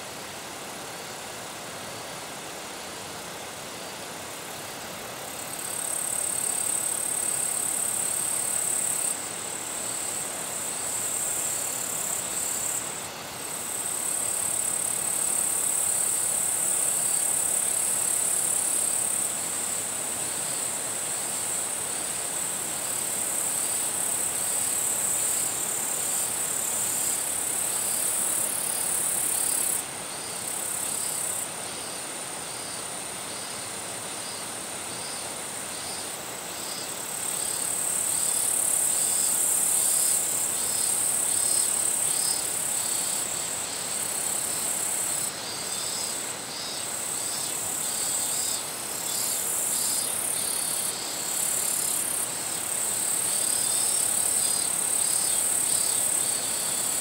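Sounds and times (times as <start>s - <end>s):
insect pulsing call: 5.3s - 57.0s
insect high-pitched trill: 13.6s - 57.0s.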